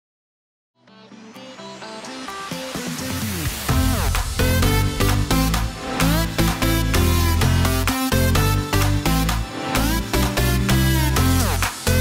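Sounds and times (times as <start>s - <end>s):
electronic music with chords: 0.8s - 12.0s
high rising sweep: 1.5s - 10.2s.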